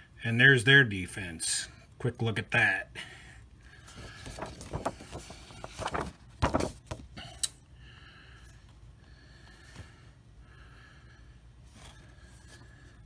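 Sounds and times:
paper cards rustling and sliding: 3.8 - 7.1.

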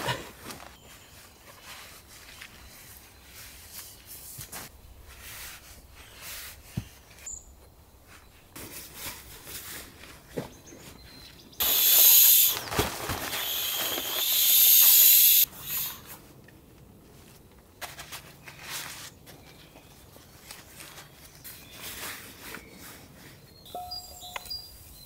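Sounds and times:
footsteps on leaf litter: 11.6 - 14.6
air hissing out of valve: 11.6 - 16.1.

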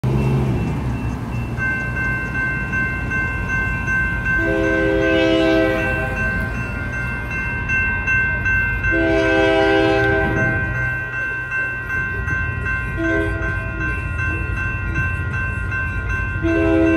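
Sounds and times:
railroad crossing bells ringing: 0.0 - 16.9
locomotive horn blasts: 4.4 - 6.2, 8.9 - 10.7, 13.0 - 13.8, 16.4 - 16.9.

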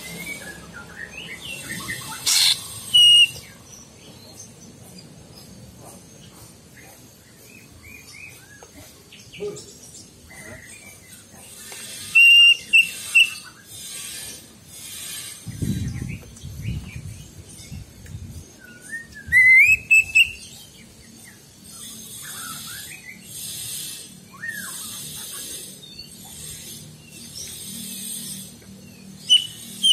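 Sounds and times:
bird singing whistled phrases: 0.1 - 3.4, 18.7 - 20.4, 29.3 - 29.9.

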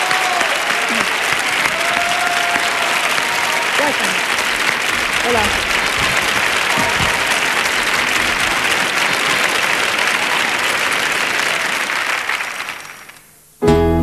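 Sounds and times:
audience applause: 0.0 - 13.3.

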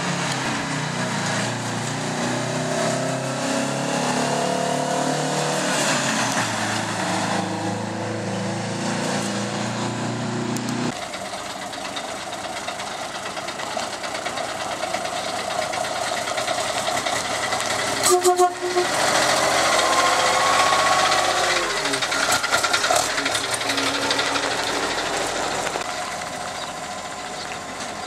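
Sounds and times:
truck engine revving: 0.0 - 11.0, 13.2 - 28.0
truck horn blast: 18.0 - 21.7.

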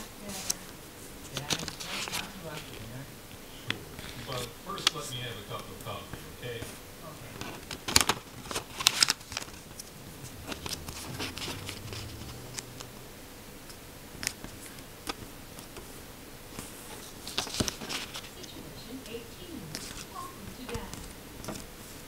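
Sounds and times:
paper rustling and creasing: 0.0 - 2.9, 3.6 - 12.2, 16.5 - 18.5, 19.7 - 20.2.

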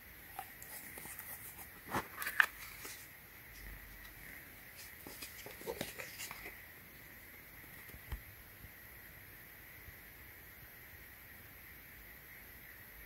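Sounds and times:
cardboard scraping and rustling: 4.7 - 6.6.

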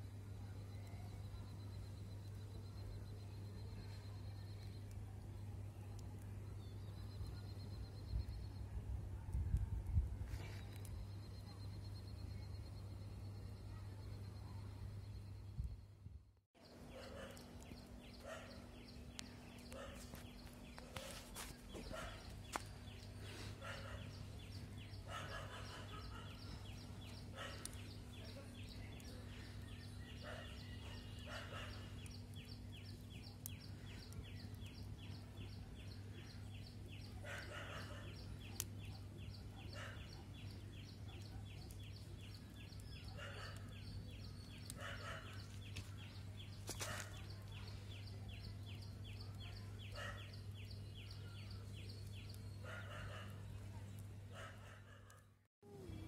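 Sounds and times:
bird calls: 16.6 - 53.6.

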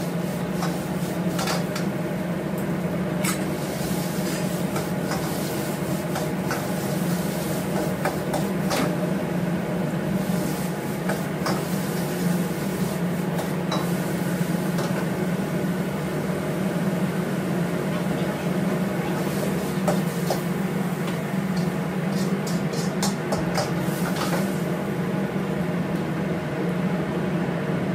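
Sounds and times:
gas burner roar: 0.0 - 27.9
spatula scraping a wok: 0.1 - 1.8, 3.6 - 8.9, 10.2 - 14.2, 21.6 - 24.6.

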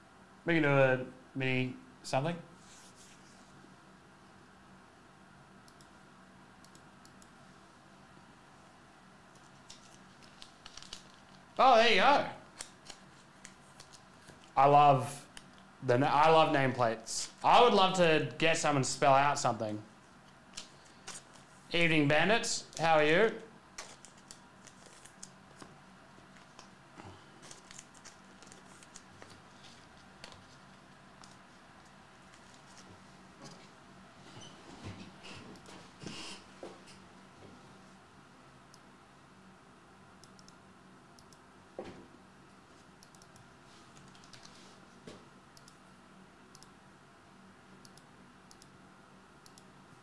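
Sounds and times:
low steady hum: 0.0 - 50.0
faint clicks and rustles: 9.3 - 11.6, 12.6 - 14.6, 23.8 - 36.0
faint clicks: 47.8 - 48.7.

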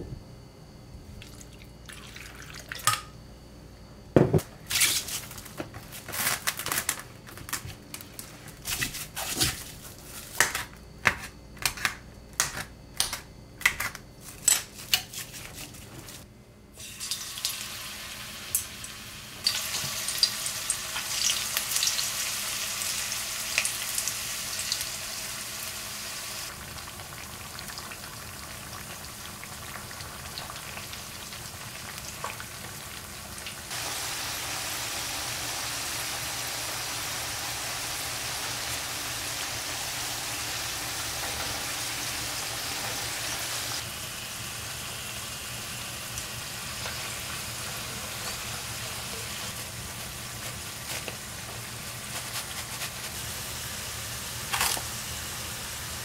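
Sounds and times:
cling film crinkling: 4.8 - 8.9
food sizzling in oil: 16.8 - 55.8.

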